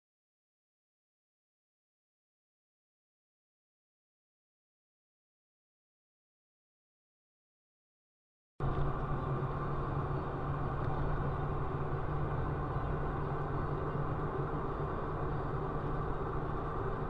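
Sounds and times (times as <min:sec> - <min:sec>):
tyres on wet road: 0:08.6 - 0:17.0
vehicle engine drone: 0:08.6 - 0:17.0.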